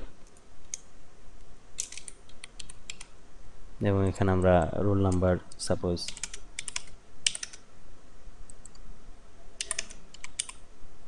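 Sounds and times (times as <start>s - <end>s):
keyboard keys clicking: 4.3s - 7.6s, 9.6s - 10.6s.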